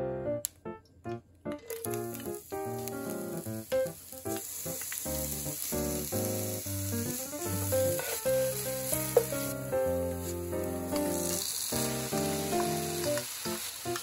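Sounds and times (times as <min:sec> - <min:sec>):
onion and garlic sizzling in oil: 0:01.7 - 0:14.0
melodic background music: 0:05.1 - 0:14.0
wooden spatula stirring in wok: 0:07.1 - 0:09.6.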